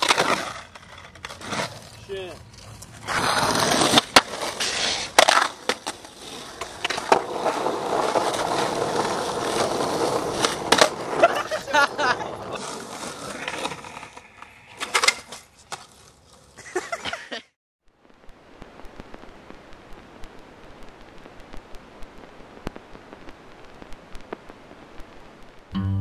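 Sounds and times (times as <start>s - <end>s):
skateboard wheels rolling on concrete: 0.0s - 17.6s
faint steady hiss: 0.0s - 26.0s
skateboard clacks: 3.0s - 11.6s
scattered clicks and crackles: 17.8s - 25.7s.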